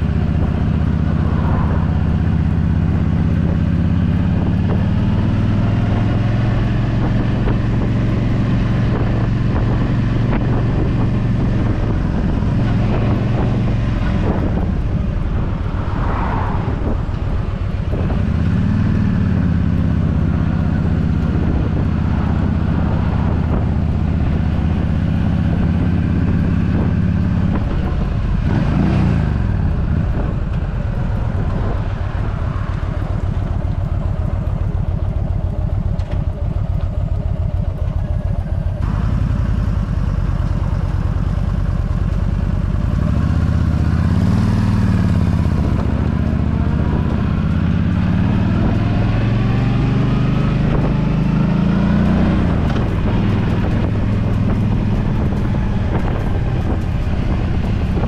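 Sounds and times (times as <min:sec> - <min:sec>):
rush of noise: 0:00.0 - 0:20.0
motorcycle engine running: 0:00.0 - 0:58.0.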